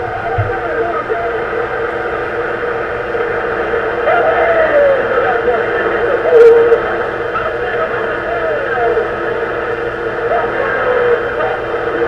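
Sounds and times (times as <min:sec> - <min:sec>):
tinny radio voice: 0:04.0 - 0:09.4, 0:10.2 - 0:12.0.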